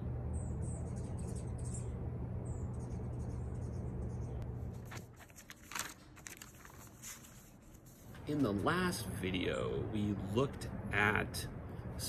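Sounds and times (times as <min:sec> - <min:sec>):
steady low hum: 0:00.0 - 0:12.0
paper rustling: 0:04.7 - 0:08.2.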